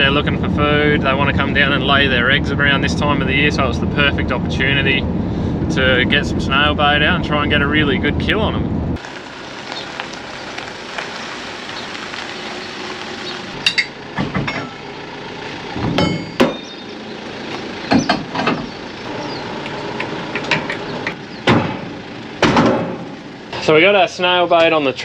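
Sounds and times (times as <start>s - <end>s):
metal clanks and clinks: 13.6s - 14.8s, 15.9s - 16.7s
sharp metallic knocks: 15.8s - 16.8s, 20.4s - 23.2s.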